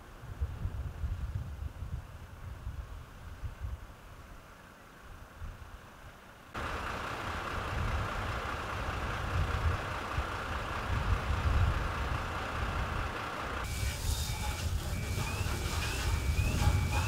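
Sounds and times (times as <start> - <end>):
diesel engines running: 6.6 - 17.0.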